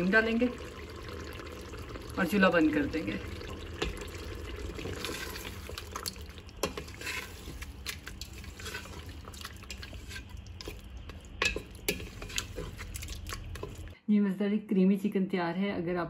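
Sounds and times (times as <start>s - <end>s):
spoon stirring curry in pot: 3.6s - 13.9s
spoon knocking against pot: 11.4s - 12.1s.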